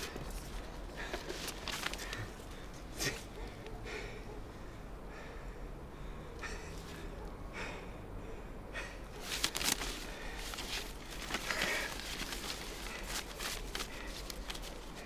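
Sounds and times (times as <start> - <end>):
paper rustling: 0.0 - 2.5, 9.2 - 15.0
man breathing and sniffing: 0.0 - 15.0.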